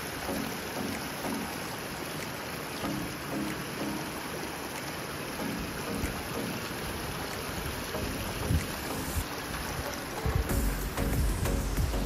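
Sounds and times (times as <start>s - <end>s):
steady rushing water noise: 0.0s - 12.0s.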